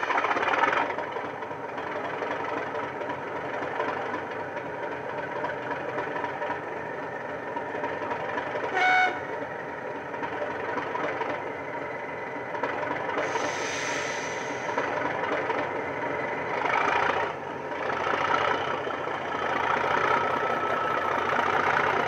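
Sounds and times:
diesel engine idling: 0.0s - 22.0s
short horn toot: 8.7s - 9.3s.

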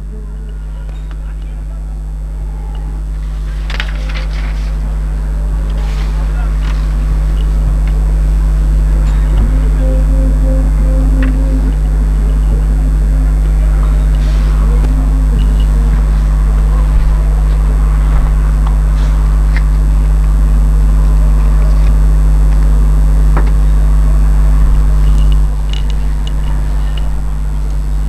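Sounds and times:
distant voices: 0.0s - 20.1s
loud low hum: 6.6s - 28.0s.

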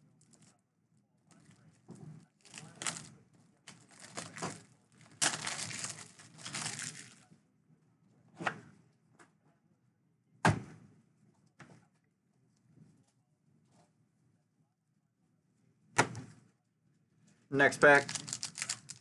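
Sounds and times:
foil packs rustling and crinkling: 2.4s - 3.1s, 3.7s - 7.2s, 17.8s - 19.0s.

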